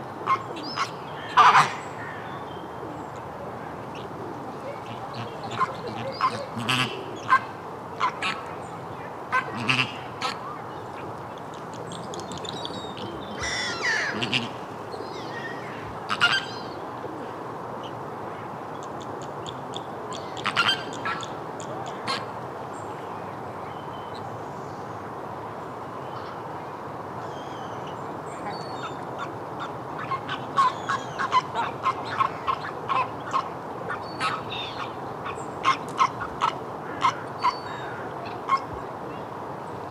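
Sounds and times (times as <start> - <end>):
flamingos honking: 0.2 - 1.8, 4.7 - 8.4, 9.3 - 10.4, 12.9 - 14.6.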